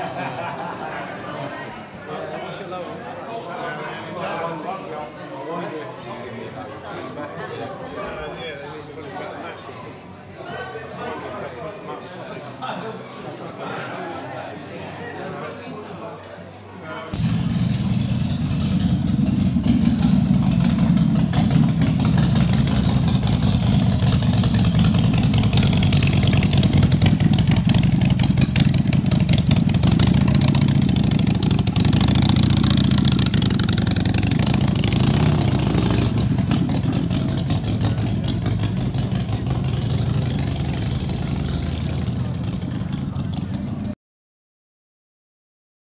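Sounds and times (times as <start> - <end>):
motorcycle engine idling: 17.2 - 43.9.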